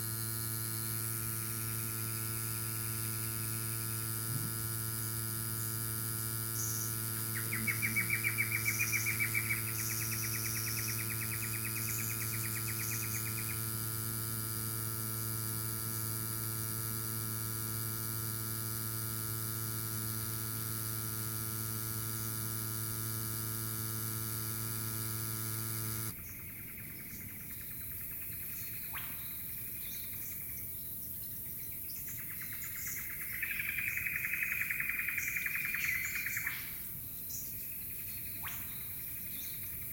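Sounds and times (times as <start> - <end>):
electric tyre inflator humming: 0.0 - 26.2
birds chirping: 6.6 - 13.6.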